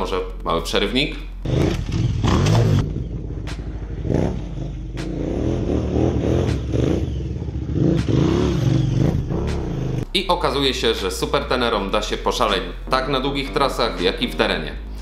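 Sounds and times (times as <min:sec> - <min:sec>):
motorcycle engine revving: 0:01.4 - 0:10.1.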